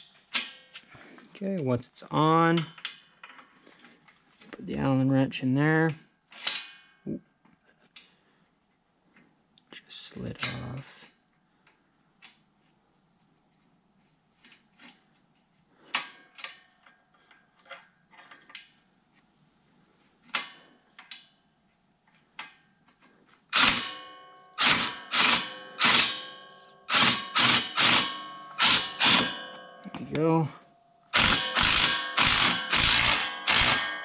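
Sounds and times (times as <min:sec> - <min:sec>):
ringing metallic clanks: 0:23.6 - 0:34.0
hand tools clicking on metal: 0:31.2 - 0:34.0.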